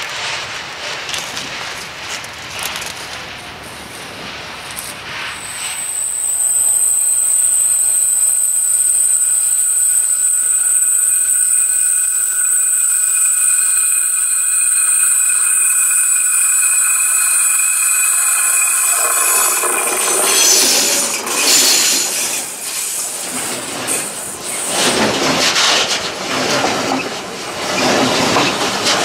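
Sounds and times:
rails ringing high-pitched: 5.2 - 25.2.

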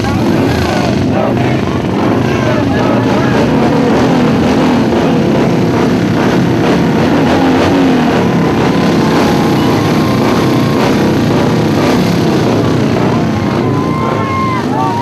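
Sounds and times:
motorcycle engines running: 0.0 - 15.0.

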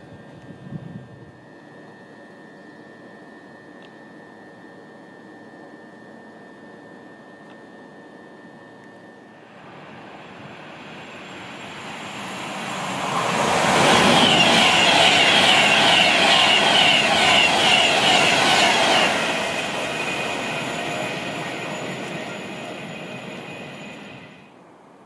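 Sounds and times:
train passing at high speed: 9.4 - 24.6.

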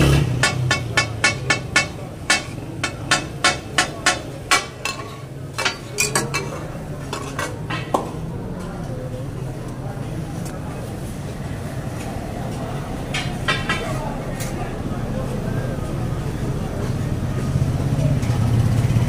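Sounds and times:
metal spatulas clanking on griddle: 0.0 - 8.2, 13.1 - 14.5.

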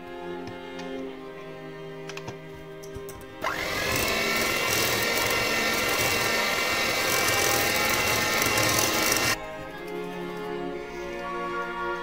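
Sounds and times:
electric hand mixer whine: 3.4 - 9.4.

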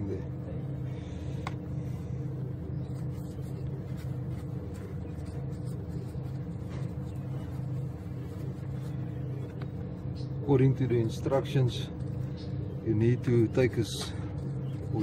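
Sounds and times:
low mechanical hum: 0.0 - 15.0
faint scratchy strokes: 1.9 - 10.0.

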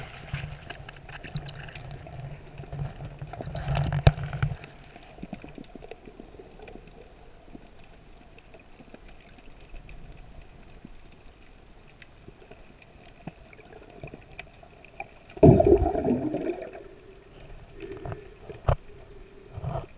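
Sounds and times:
faint steady underwater hum: 0.0 - 19.9
rushing gurgling water: 13.4 - 19.9.

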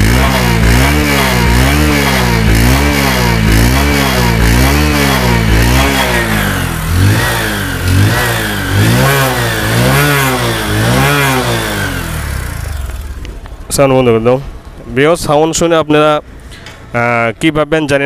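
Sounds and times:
motorcycle engine revving: 0.0 - 14.8.

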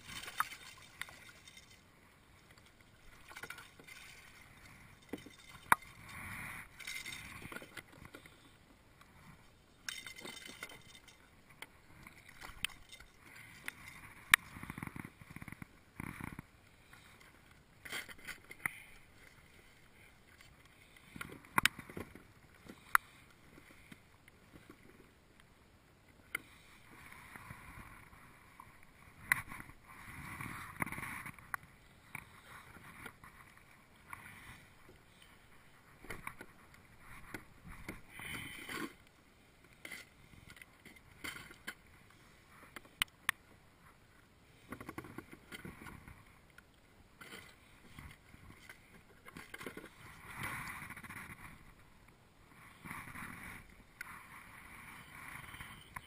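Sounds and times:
water splashing against hull: 0.0 - 1.8, 2.4 - 8.4.

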